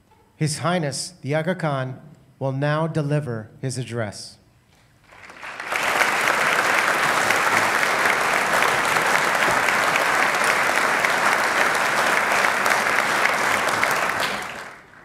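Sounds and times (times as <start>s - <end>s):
audience applauding: 5.1s - 15.0s.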